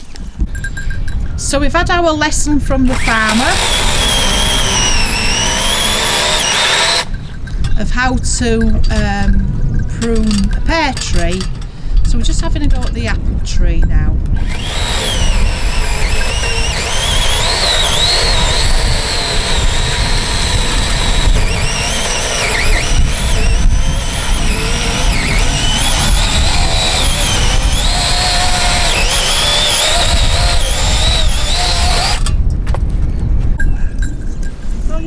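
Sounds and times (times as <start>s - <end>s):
power tool cutting branches: 2.8s - 7.2s, 14.3s - 32.4s.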